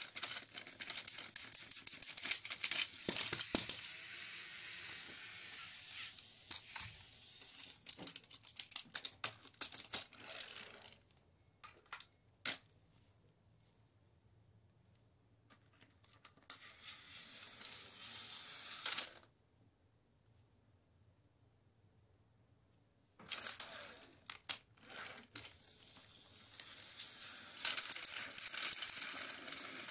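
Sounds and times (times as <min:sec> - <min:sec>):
toy train motors whirring: 0:00.0 - 0:11.0, 0:16.3 - 0:19.3, 0:23.2 - 0:29.9.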